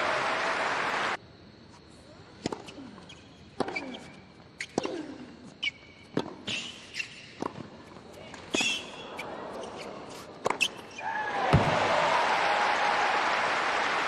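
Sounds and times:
shoes squeaking on court: 0:01.7 - 0:11.0
tennis ball bouncing on court: 0:03.6 - 0:05.0, 0:06.1 - 0:06.5.

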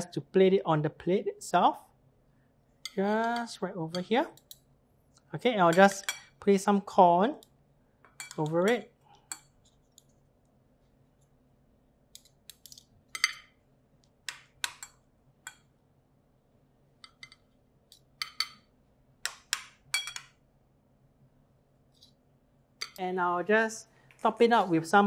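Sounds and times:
faint steady hum: 0:00.0 - 0:25.0
spoons clinking on ceramic: 0:05.7 - 0:06.4, 0:08.1 - 0:10.1, 0:12.2 - 0:13.6, 0:18.2 - 0:18.7, 0:19.9 - 0:20.4.

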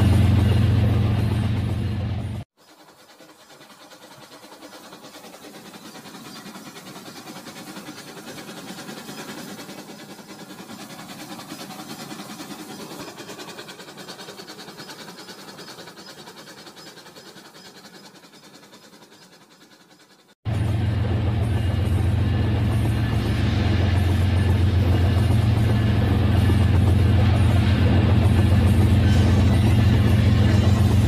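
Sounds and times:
toy train whirring rattle: 0:02.6 - 0:20.4.

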